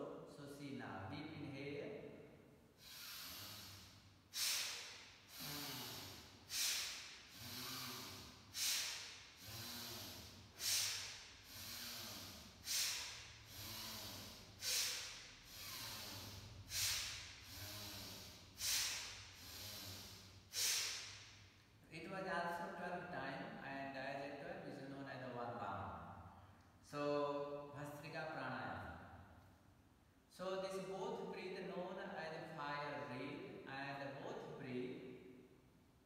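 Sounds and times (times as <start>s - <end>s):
forceful breathing through nose: 2.8s - 21.3s.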